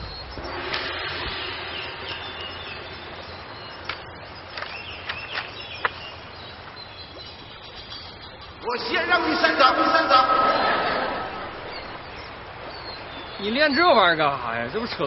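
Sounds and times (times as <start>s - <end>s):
birds chirping: 0.0s - 15.0s
fast-flowing river rushing: 8.6s - 12.6s.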